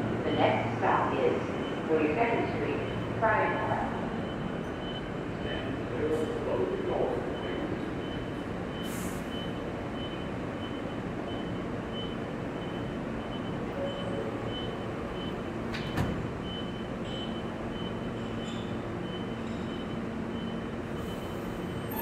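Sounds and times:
subway train equipment humming: 0.0 - 22.0
train doors sliding shut: 15.6 - 16.4.

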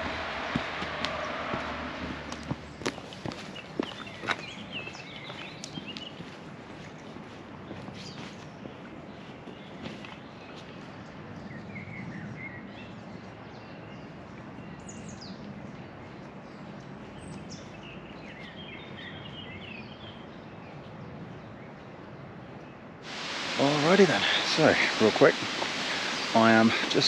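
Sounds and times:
songbirds chirping: 0.0 - 27.0
outdoor background hiss: 13.4 - 27.0.

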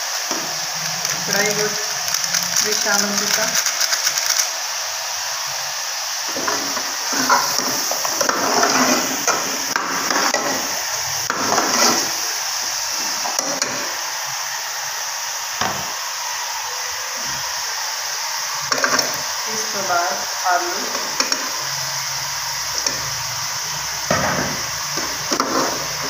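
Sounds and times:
steady high hiss: 0.0 - 26.0
metal ladle scraping pot: 6.3 - 12.2.

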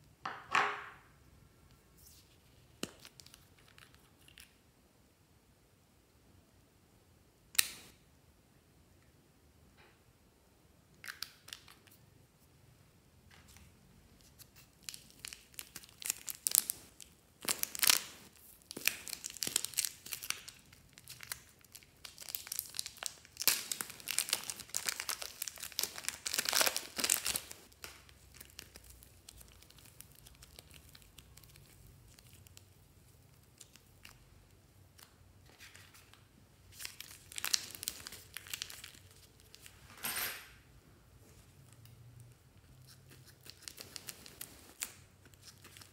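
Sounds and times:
plastic bag crinkling: 14.3 - 34.2, 35.8 - 39.8.

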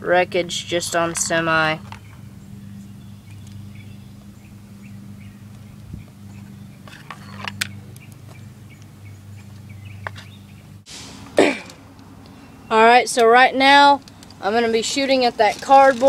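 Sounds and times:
steady low hum: 0.0 - 16.0
small bird chirping: 1.8 - 10.8.

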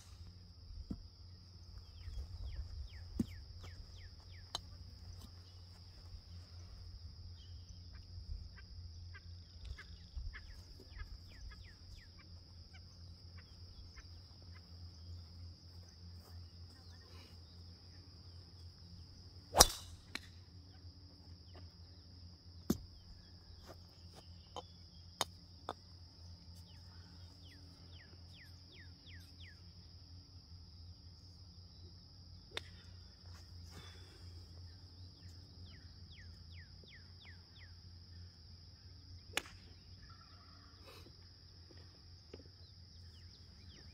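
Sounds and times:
high insect buzz: 0.0 - 41.8
bird chirps: 7.3 - 17.2
golf ball struck with crack: 19.5 - 20.4
faint clicks of golf balls hit: 39.3 - 39.8.

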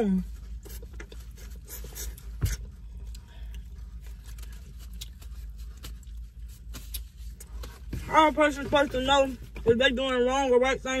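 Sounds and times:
low steady hum: 0.0 - 11.0
wet chewing: 0.6 - 7.7.

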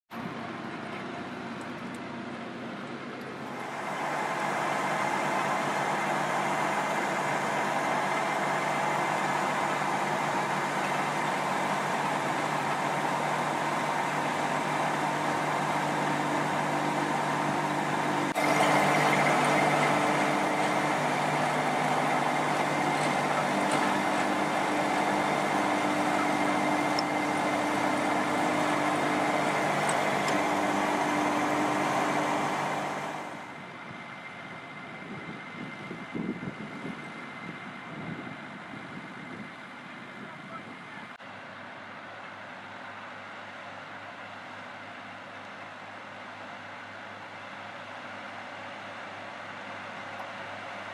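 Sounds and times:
tractor engine running: 0.2 - 40.3.

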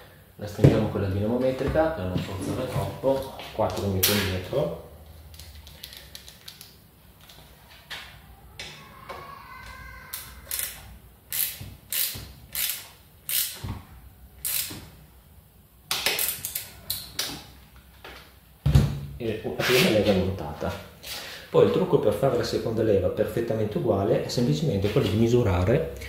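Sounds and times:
torque wrench ratcheting clicks: 10.1 - 13.6, 14.4 - 14.7.

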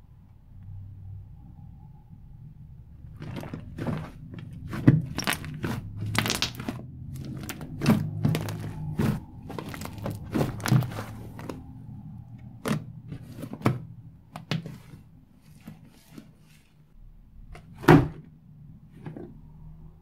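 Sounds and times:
slime popping and crackling: 3.2 - 11.7.

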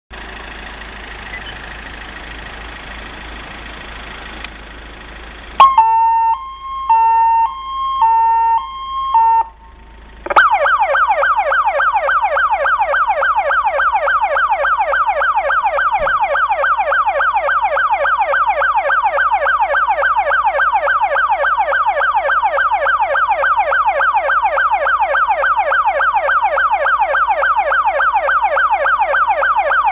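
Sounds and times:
fast yelp siren: 5.6 - 9.7, 10.3 - 29.9
two-tone siren: 5.6 - 29.9.

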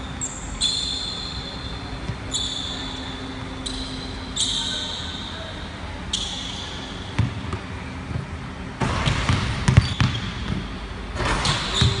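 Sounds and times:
sneaker squeaks: 0.1 - 7.6, 9.0 - 12.0
basketball bouncing on wooden floor: 7.2 - 7.4, 8.8 - 10.7.

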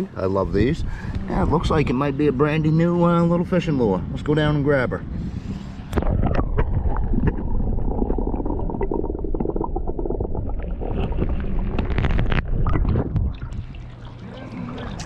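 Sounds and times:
muffled underwater river sloshing: 5.6 - 15.0.

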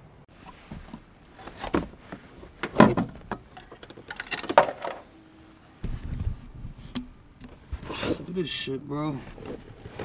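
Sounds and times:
clicks and scrapes of metal and plastic: 9.3 - 10.0.

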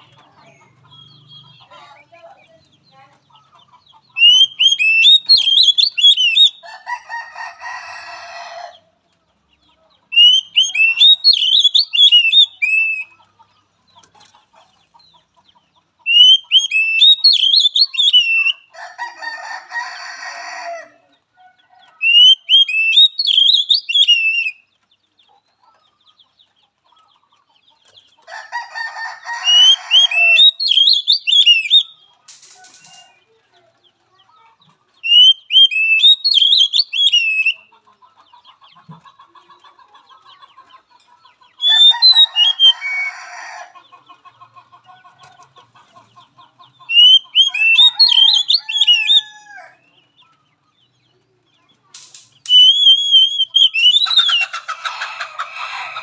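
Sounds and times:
harsh rasping bird chatter: 0.0 - 8.1, 10.1 - 20.4, 22.0 - 50.0, 51.8 - 56.0
bird whistled song: 4.1 - 6.6, 10.1 - 13.2, 16.0 - 18.7, 22.0 - 24.7, 29.4 - 32.1, 35.0 - 37.7, 41.6 - 42.9, 46.8 - 49.3, 52.4 - 54.5.

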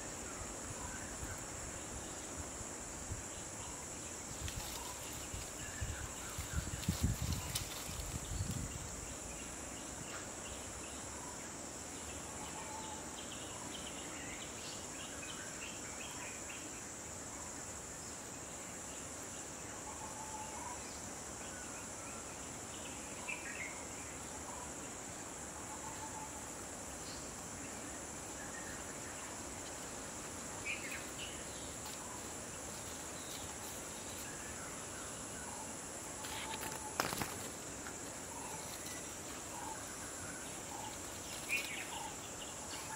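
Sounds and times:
higher insect trill pulsing: 0.0 - 42.9
insects chirring: 0.0 - 42.9.

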